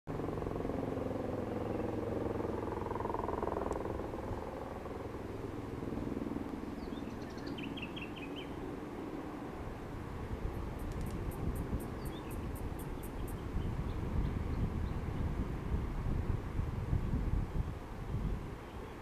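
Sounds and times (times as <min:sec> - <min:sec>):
helicopter rotor beating: 0:00.1 - 0:14.2
helicopter engine hum: 0:00.1 - 0:16.6
bird chirping: 0:06.6 - 0:08.6, 0:10.8 - 0:15.3.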